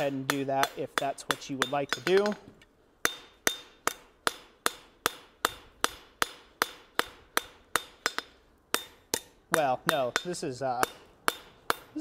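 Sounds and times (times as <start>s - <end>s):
hammer striking steel on anvil: 0.0s - 2.4s, 3.0s - 12.0s.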